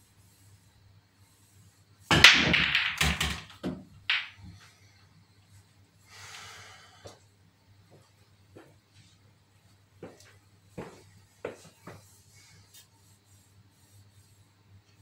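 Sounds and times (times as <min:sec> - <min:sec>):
cue striking cue ball: 0:02.1 - 0:04.4
pool balls clacking: 0:02.1 - 0:04.5.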